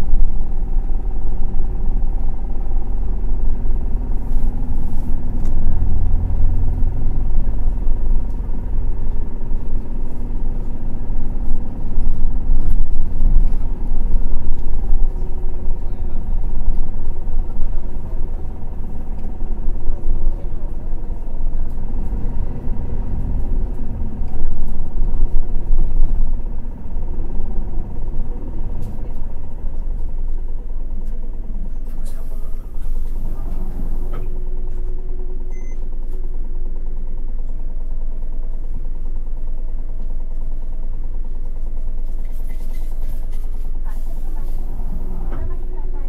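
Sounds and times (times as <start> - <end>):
bus diesel engine: 0.0 - 46.0
road rumble: 0.0 - 46.0.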